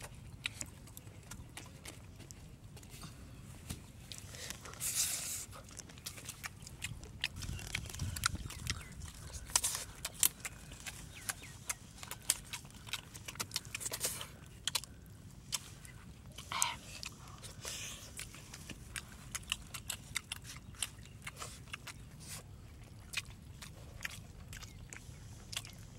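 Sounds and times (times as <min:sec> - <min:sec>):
wet lip smacks and clicks: 0:05.6 - 0:15.7, 0:18.2 - 0:22.4, 0:23.1 - 0:25.9.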